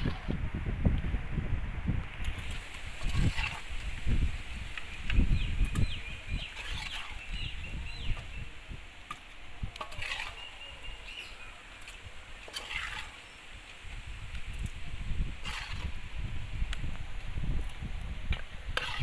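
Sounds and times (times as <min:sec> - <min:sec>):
small birds chirping: 0:04.7 - 0:08.6, 0:09.9 - 0:13.5
ladle scraping and clinking pot: 0:09.8 - 0:10.6, 0:12.4 - 0:13.2, 0:18.8 - 0:19.0.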